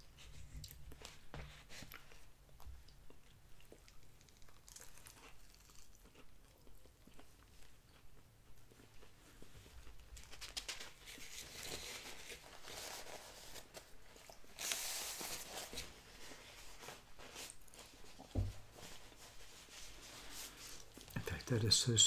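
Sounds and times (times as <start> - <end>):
paper napkin rustling: 10.2 - 21.0
soft thump: 18.3 - 18.6.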